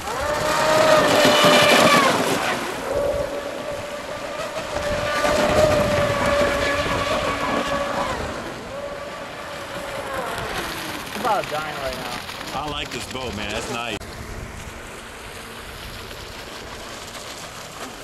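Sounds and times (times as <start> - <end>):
high-pitched motor whine: 0.0 - 12.4.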